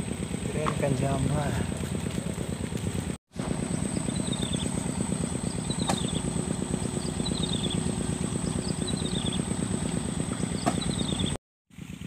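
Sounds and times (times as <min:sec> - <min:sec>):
small engine idling: 0:00.0 - 0:12.0.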